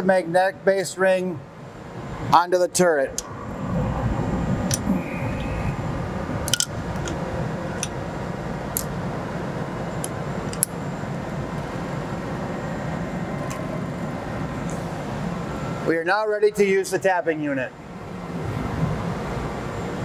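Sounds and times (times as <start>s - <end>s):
steady hum: 0.0s - 20.0s
tooling parts clicking and tapping: 10.0s - 10.7s.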